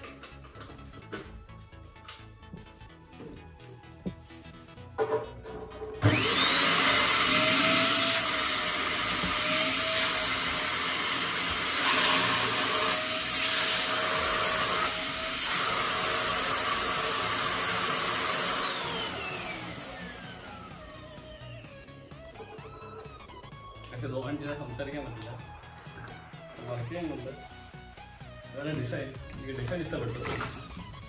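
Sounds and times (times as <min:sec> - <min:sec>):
vacuum cleaner motor whining: 0:05.6 - 0:23.5
vacuum cleaner rush of air: 0:06.0 - 0:14.8.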